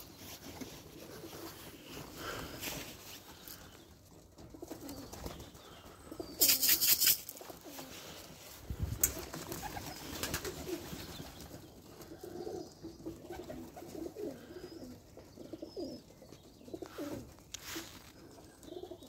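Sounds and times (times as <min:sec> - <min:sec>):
pigeons cooing: 0:00.0 - 0:19.0
brief clatters: 0:06.4 - 0:07.5.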